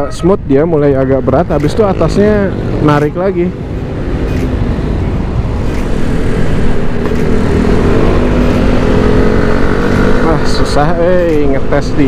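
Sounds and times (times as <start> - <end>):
scooter engine accelerating: 5.9 - 11.7.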